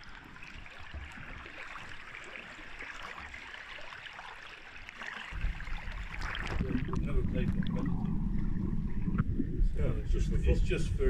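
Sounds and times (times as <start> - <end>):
pool water splashing: 0.0 - 9.4
low rumble: 5.4 - 11.0.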